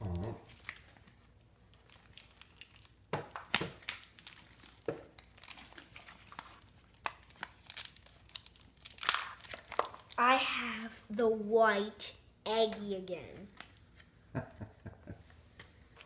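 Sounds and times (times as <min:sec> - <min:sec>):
plastic packaging crinkling: 0:00.5 - 0:10.2.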